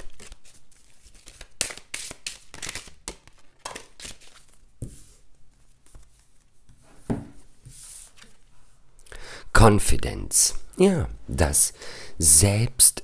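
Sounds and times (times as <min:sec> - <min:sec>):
cards being shuffled: 0:00.0 - 0:06.8.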